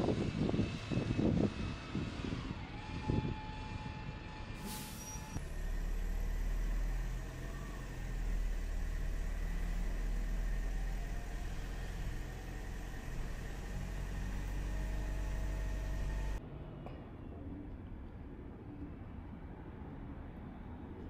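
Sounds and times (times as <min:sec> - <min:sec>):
large vehicle engine rumbling: 0:00.0 - 0:16.5.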